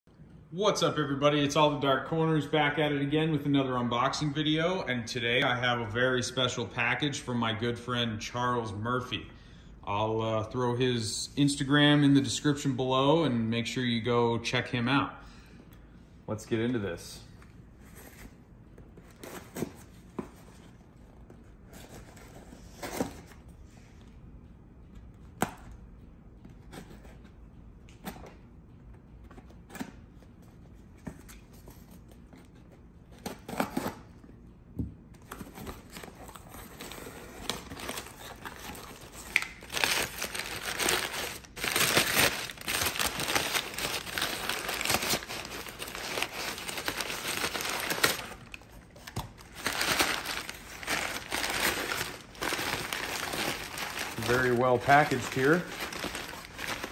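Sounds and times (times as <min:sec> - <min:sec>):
packing paper crinkling: 0:35.3 - 0:56.9.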